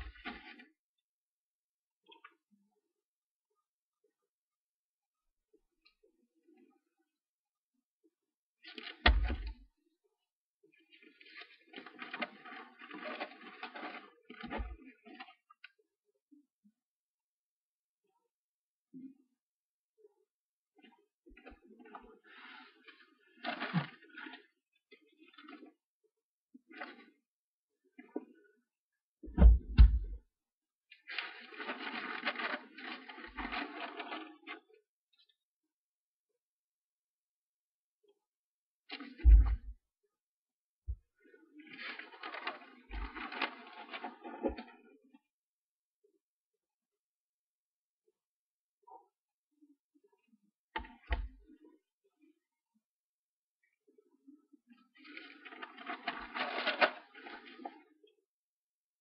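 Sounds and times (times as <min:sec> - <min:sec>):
low thud: 0:29.3 - 0:30.2
notebook pages rustling: 0:31.1 - 0:34.3, 0:55.5 - 0:57.2.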